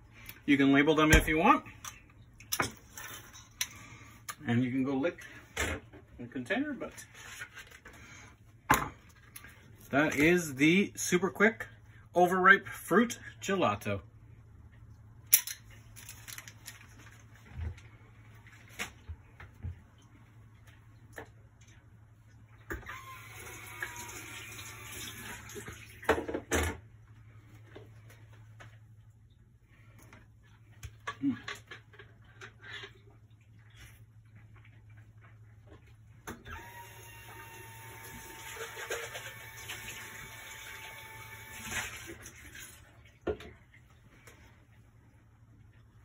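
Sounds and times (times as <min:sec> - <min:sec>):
water running: 0:20.2 - 0:26.1, 0:36.6 - 0:44.9.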